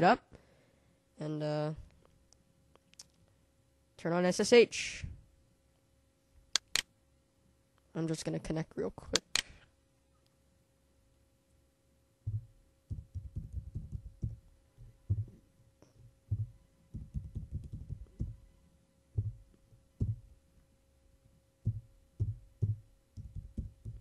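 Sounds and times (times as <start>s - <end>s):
faint electrical hum: 0.0s - 24.0s
keyboard typing: 16.3s - 18.4s.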